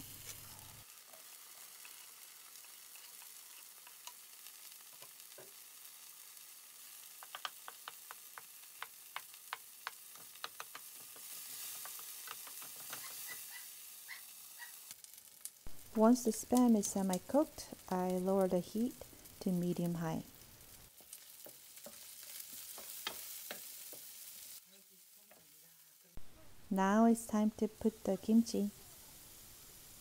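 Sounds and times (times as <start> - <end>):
food sizzling in oil: 0.0 - 30.0
spatula clicking against pan: 7.2 - 11.2.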